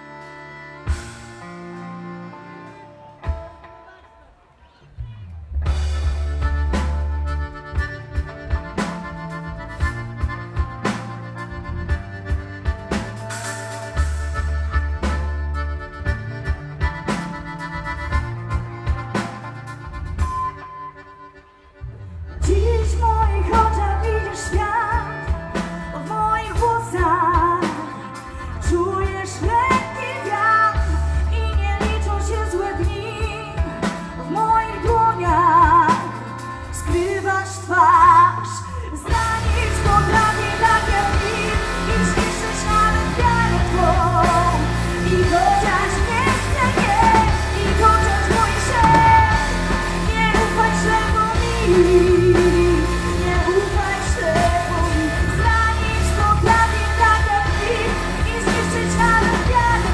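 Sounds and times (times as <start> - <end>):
live band with guitars and drums: 0.0 - 59.9
woman singing lead: 22.3 - 59.9.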